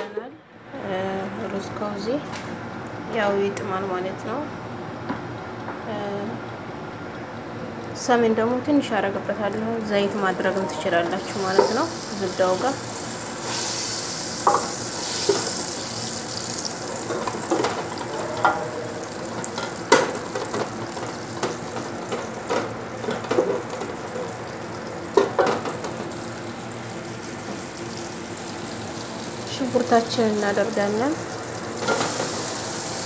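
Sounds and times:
butter sizzling in a pot: 0:09.9 - 0:22.5, 0:23.2 - 0:33.0.

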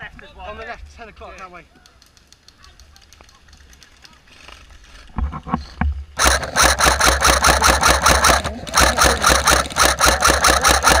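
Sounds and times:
airsoft rifle firing on full auto: 0:06.2 - 0:11.0.

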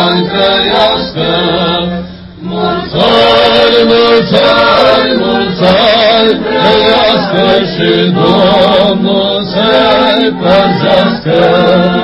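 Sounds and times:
group of voices chanting: 0:00.0 - 0:12.0.

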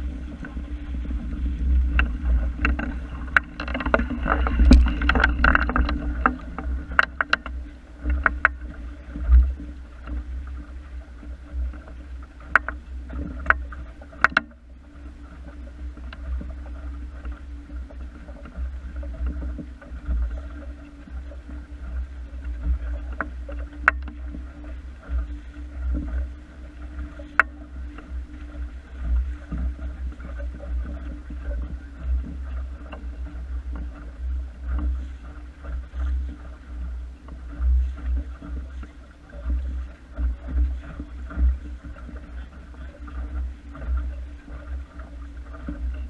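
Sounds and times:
wind buffeting microphone: 0:00.0 - 0:11.8
water slapping against boat hull: 0:00.0 - 0:46.0.

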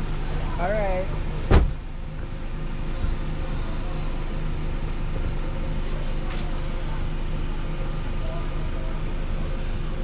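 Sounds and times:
vehicle engine rumble: 0:00.0 - 0:10.0
sharp thump: 0:01.5 - 0:01.8.

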